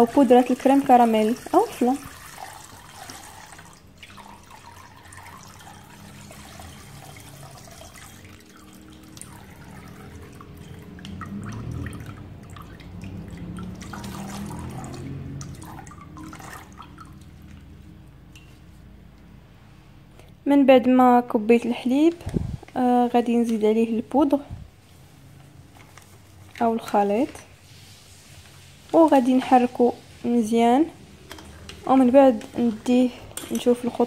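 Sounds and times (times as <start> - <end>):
milk pouring into saucepan: 0.0 - 18.6.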